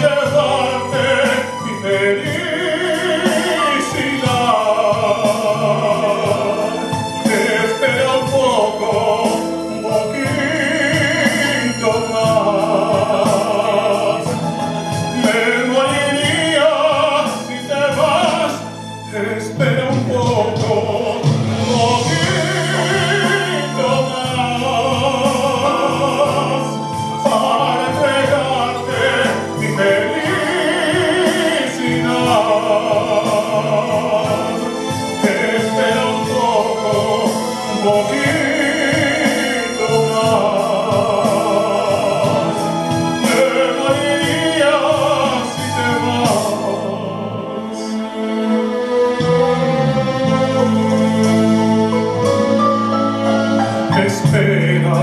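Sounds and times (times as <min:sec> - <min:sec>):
instrumental accompaniment: 0:00.0 - 0:55.0
tenor singing operatic ballad: 0:00.0 - 0:55.0.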